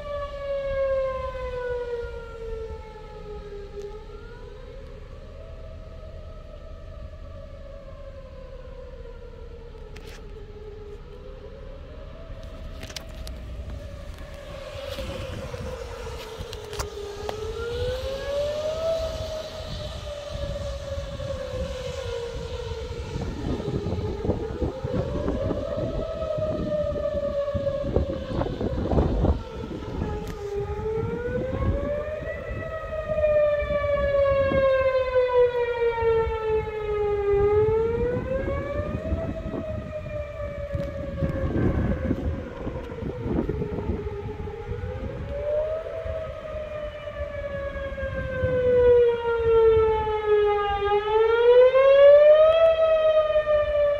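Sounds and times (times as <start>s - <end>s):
tornado siren wailing: 0.0s - 53.9s
low rumble: 2.2s - 18.0s.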